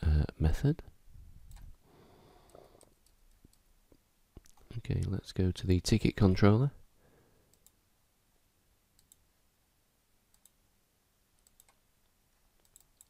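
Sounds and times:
faint computer mouse clicks: 7.5s - 7.8s, 9.0s - 9.2s, 10.3s - 10.6s, 11.4s - 11.8s, 12.6s - 13.0s.

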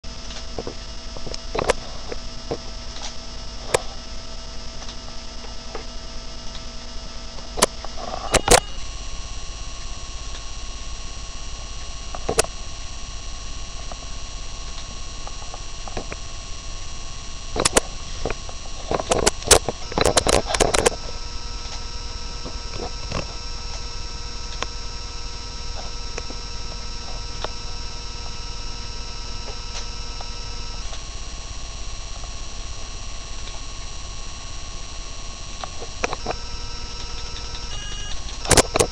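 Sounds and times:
electrical hum: 0.0s - 38.9s
sharp clicks: 17.6s - 21.0s, 35.6s - 38.9s.

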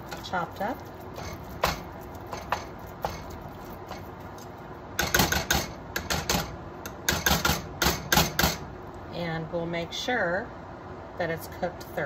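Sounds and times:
meat chopper striking skillet: 0.0s - 8.7s.

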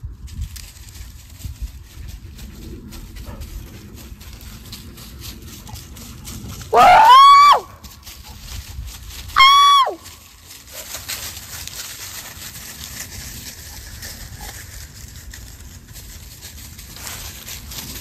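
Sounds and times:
footsteps in dry leaves: 0.0s - 18.0s
dog yelping: 6.7s - 7.7s, 9.4s - 10.0s.

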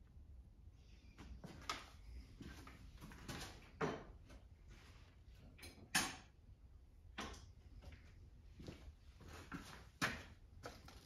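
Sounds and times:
tools and parts clicking and clunking: 3.0s - 4.4s, 5.4s - 6.4s, 7.1s - 7.6s.

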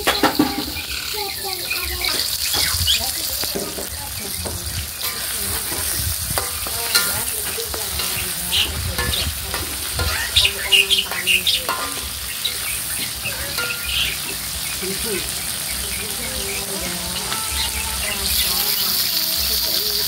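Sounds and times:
metal spatula scraping a wok: 0.0s - 15.9s
vegetables sizzling in oil: 0.0s - 20.0s.

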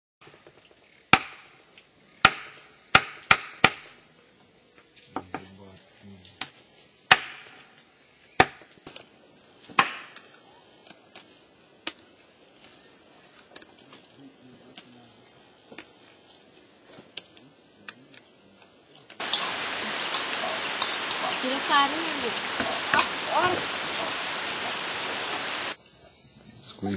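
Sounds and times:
sharp chopping strikes: 1.1s - 1.4s, 2.2s - 3.8s, 7.1s - 7.6s, 9.8s - 10.2s
high-pitched insect drone: 19.2s - 26.9s.

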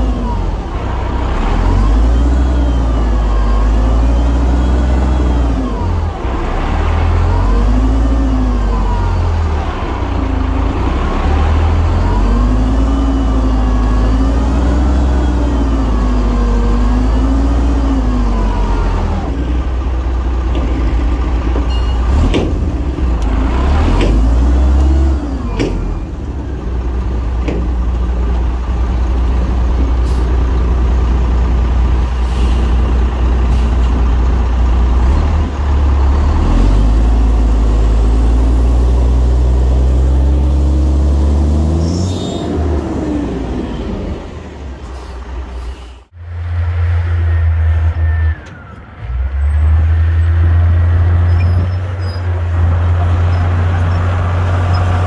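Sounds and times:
diesel earthmoving machinery running: 0.0s - 55.0s.

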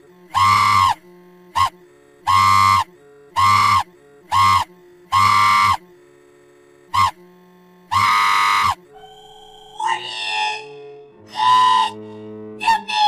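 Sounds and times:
buzzy pulsing held tones: 0.0s - 13.0s.

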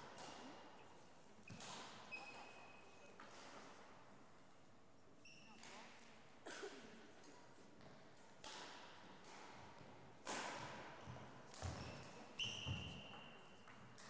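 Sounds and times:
rackets hitting shuttlecock: 0.1s - 0.5s, 7.8s - 13.0s.

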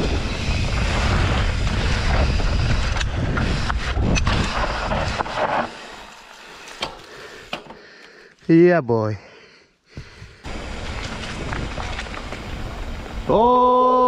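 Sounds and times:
wind rushing over microphone: 0.0s - 5.4s
mountain bike rattling: 0.0s - 7.5s, 10.5s - 13.6s.

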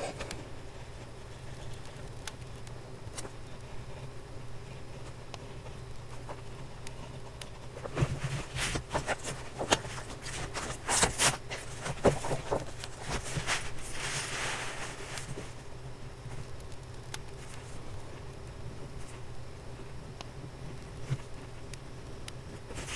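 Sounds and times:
notebook pages rustling: 5.0s - 15.7s, 22.5s - 22.9s.

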